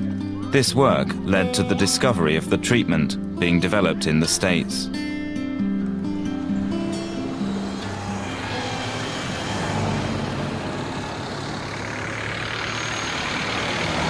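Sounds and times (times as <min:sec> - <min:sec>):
acoustic guitar music: 0:00.0 - 0:14.0
road traffic: 0:05.0 - 0:14.0
vehicle passing close: 0:06.0 - 0:14.0.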